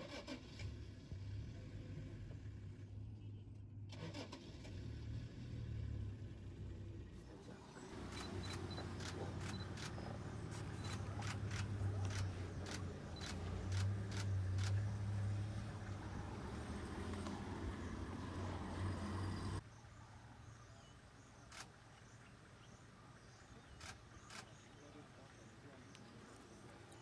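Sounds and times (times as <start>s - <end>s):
vehicle engine idling: 0.6s - 19.6s
camera shutter clicks: 8.1s - 14.8s.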